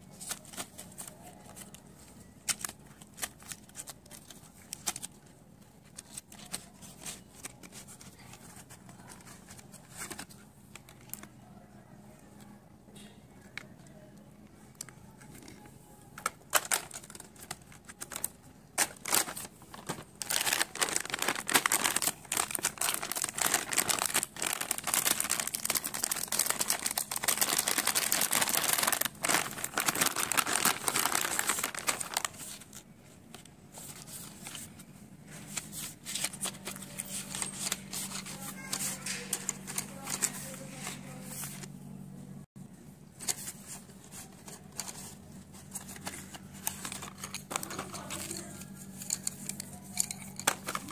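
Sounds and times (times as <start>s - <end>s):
low steady hum: 0.0s - 50.9s
crayons and pencils clicking: 14.8s - 32.3s
plastic packaging crinkling: 16.2s - 34.8s, 35.5s - 41.7s, 43.2s - 49.2s.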